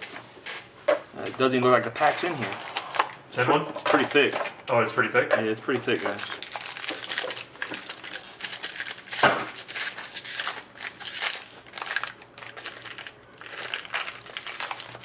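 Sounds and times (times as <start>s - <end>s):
foil wrapper crinkling and tearing: 2.0s - 3.1s, 5.9s - 15.0s.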